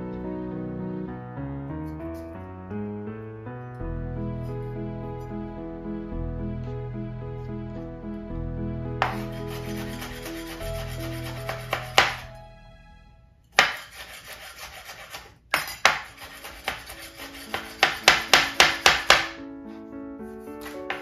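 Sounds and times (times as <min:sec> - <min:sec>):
knife chopping on cutting board: 0:09.0 - 0:09.3, 0:10.8 - 0:12.3, 0:13.6 - 0:19.4.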